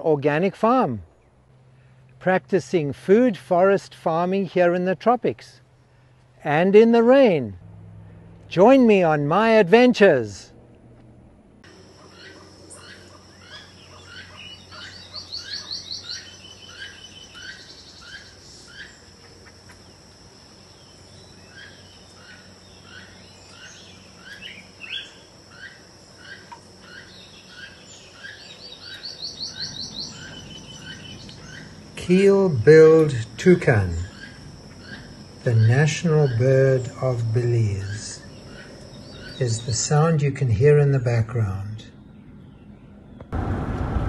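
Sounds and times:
high insect hum: 11.5 - 44.0.

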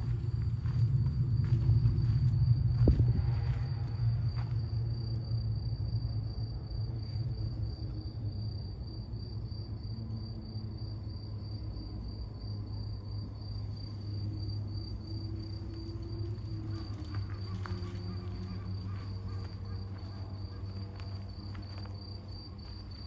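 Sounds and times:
cricket chirping: 0.0 - 23.0
low steady rumble: 0.0 - 23.0.

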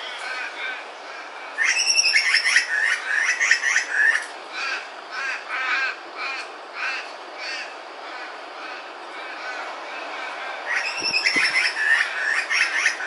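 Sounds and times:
butcherbird calling: 0.0 - 9.6, 10.7 - 13.0.

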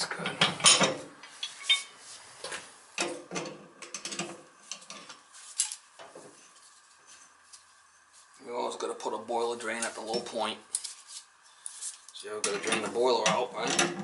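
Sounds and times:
metal pipe fittings clinking: 0.7 - 1.9.

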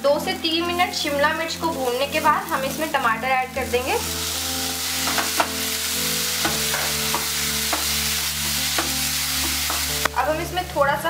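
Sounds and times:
vegetables sizzling in a pan: 0.0 - 11.0
wooden spatula knocking pan: 5.0 - 5.6, 6.4 - 10.1.

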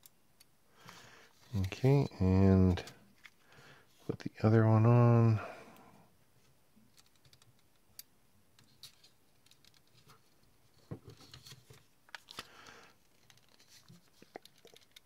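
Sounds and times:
clicks of model parts handled: 13.1 - 15.0.

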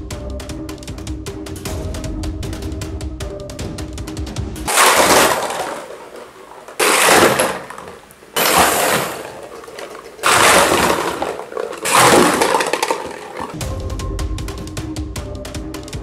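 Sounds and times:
crashing sound effect: 4.7 - 13.6.

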